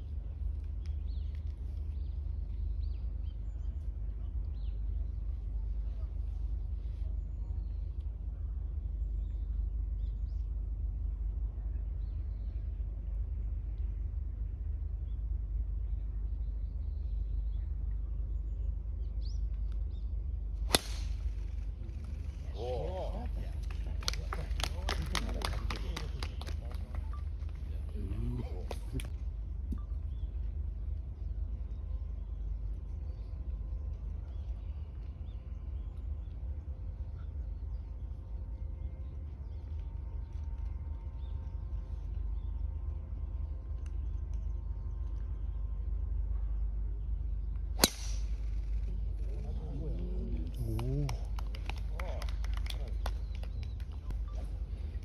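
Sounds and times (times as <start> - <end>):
low rumble on microphone: 0.0 - 55.0
golf ball struck by club: 20.6 - 21.5, 47.8 - 48.6.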